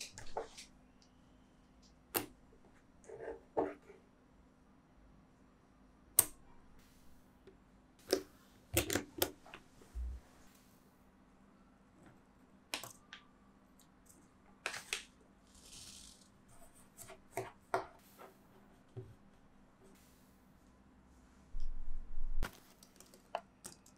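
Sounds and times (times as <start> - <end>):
sand pressed with soft hiss: 6.8 - 7.2, 19.9 - 21.4.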